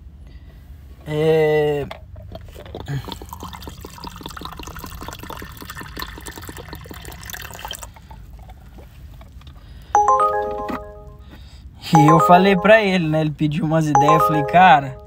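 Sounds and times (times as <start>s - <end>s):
water pattering and trickling: 2.4s - 9.8s.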